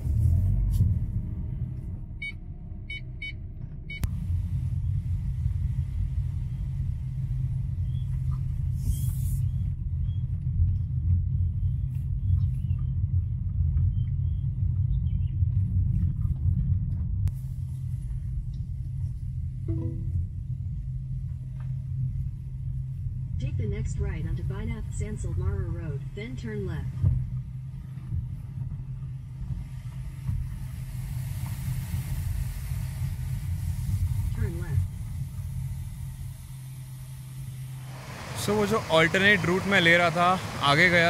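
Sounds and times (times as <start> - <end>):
car engine and tyres rumbling: 0.0 - 41.0.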